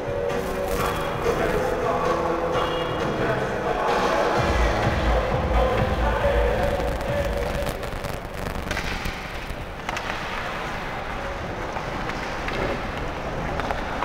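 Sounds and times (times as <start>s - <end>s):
ice arena noise: 0.0s - 14.0s
hockey sticks and puck clacking: 8.6s - 14.0s.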